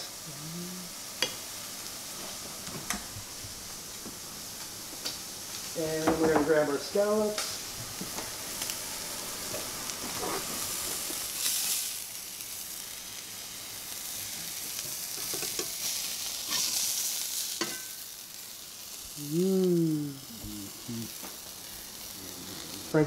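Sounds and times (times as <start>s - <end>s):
person humming: 0.0s - 1.1s, 19.1s - 21.2s, 22.1s - 23.0s
scallops sizzling in a skillet: 0.0s - 23.0s.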